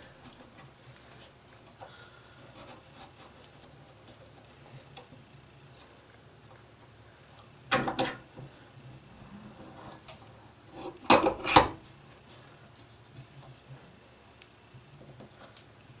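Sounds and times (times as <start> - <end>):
tools and wire being handled: 0.0 - 8.5.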